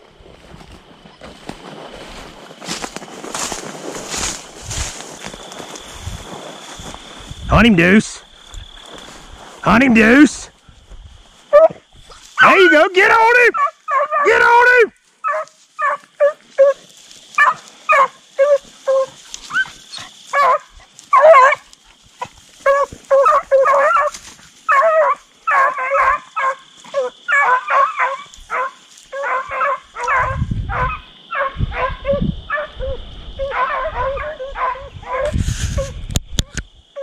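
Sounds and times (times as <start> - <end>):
hounds barking in quick yelps: 11.5 - 11.8, 13.5 - 16.8, 17.4 - 32.8, 33.4 - 35.9.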